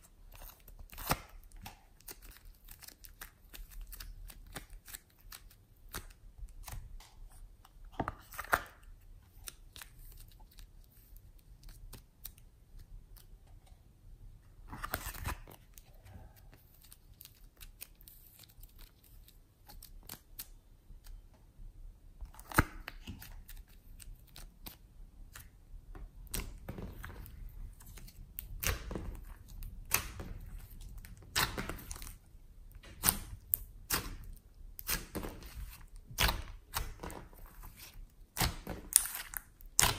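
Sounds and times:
clay crackling and tearing: 0:00.0 - 0:07.0, 0:26.2 - 0:39.9.

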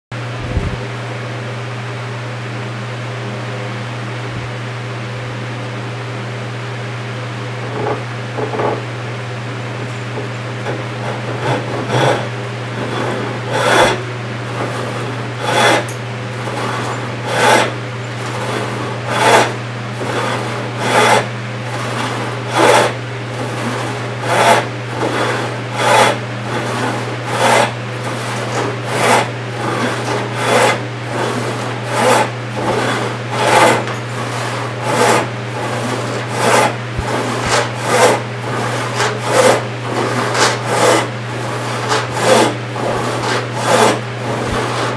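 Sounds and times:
hand saw ripping wood: 0:10.6 - 0:44.9.

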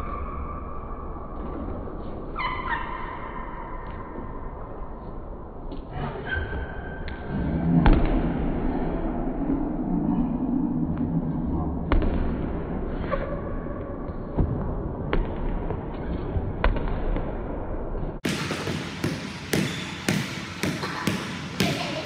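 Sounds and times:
basketball bouncing on wooden floor: 0:18.2 - 0:22.0.

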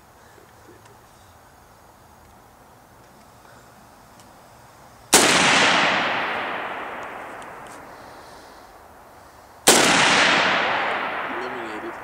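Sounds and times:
rifle shot with echo: 0:05.1 - 0:08.0, 0:09.6 - 0:12.0.

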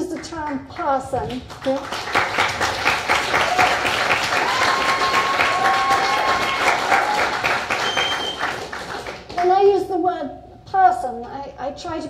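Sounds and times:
audience applauding: 0:01.5 - 0:09.4
person whooping: 0:03.4 - 0:08.4.

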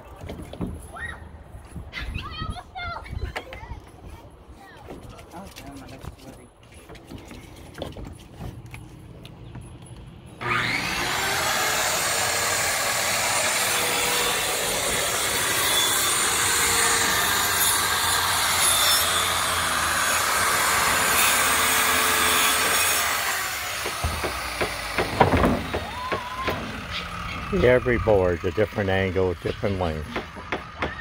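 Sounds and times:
circular saw cutting board: 0:10.4 - 0:30.4.

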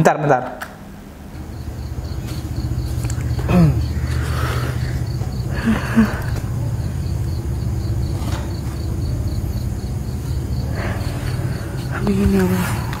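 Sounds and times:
faint crickets chirping: 0:00.7 - 0:13.0
steady low rumble: 0:00.8 - 0:13.0.

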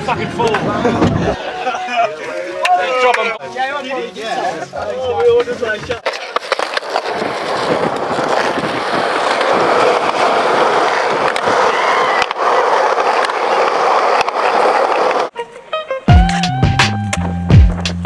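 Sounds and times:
skateboard wheels rolling on pavement: 0:03.8 - 0:15.4.

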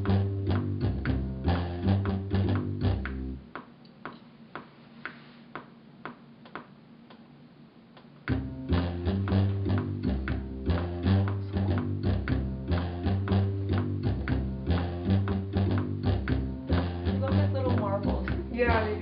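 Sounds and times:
music with bass and beat: 0:00.0 - 0:03.4, 0:08.3 - 0:19.0.

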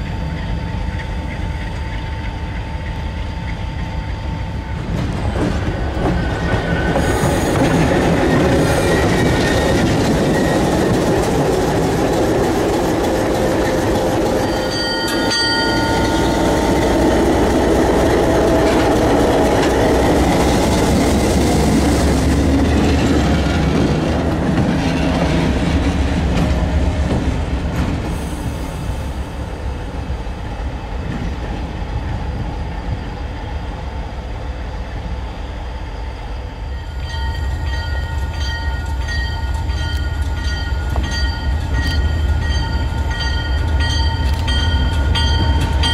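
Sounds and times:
diesel locomotive engine rumbling: 0:00.0 - 0:45.9
train wheels clattering on rails: 0:04.8 - 0:29.4, 0:37.1 - 0:45.9
high-pitched squeal: 0:06.1 - 0:11.3.

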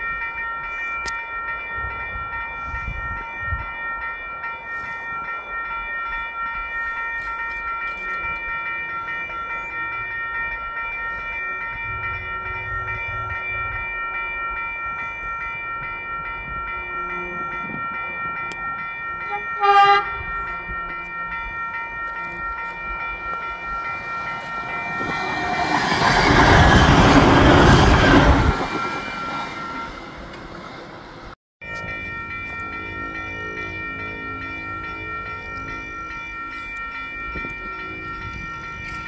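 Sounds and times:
level crossing warning bells: 0:00.0 - 0:39.0
train horn blast: 0:19.2 - 0:20.4
train wheels rumbling on rail: 0:23.2 - 0:31.3.

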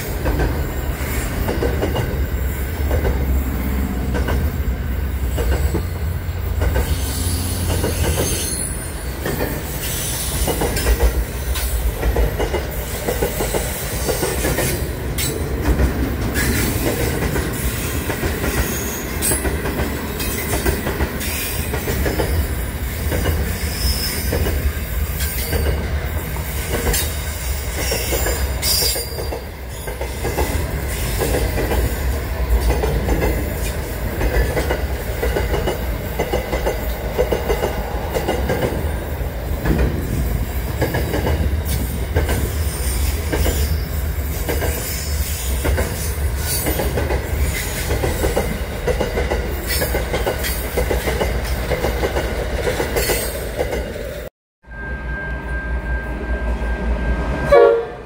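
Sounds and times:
train wheels rumbling on rails: 0:00.0 - 0:54.3
high-pitched wheel squeal: 0:06.8 - 0:10.6, 0:23.5 - 0:24.4.

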